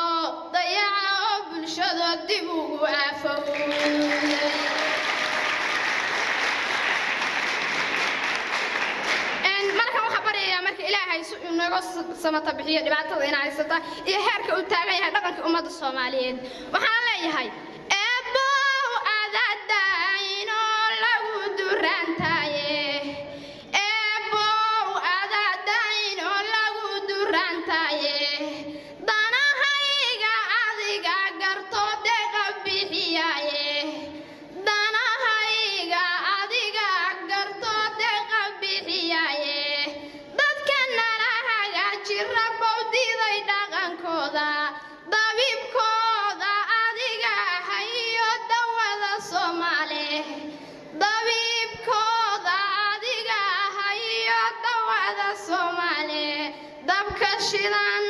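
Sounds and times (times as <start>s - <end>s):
woman chanting a sung poem: 0.0s - 5.5s.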